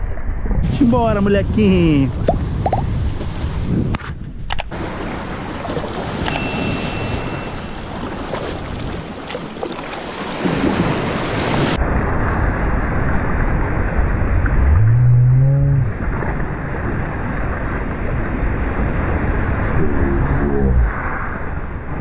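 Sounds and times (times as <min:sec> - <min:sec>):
wind buffeting microphone: 0:00.4 - 0:06.3, 0:07.4 - 0:22.0
surf rushing around kayak hull: 0:04.7 - 0:11.8
loud low rising tone: 0:14.3 - 0:16.0.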